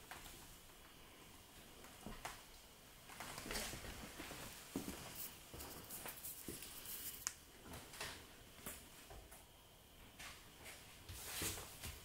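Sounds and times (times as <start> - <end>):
faint footsteps: 3.0 - 9.5.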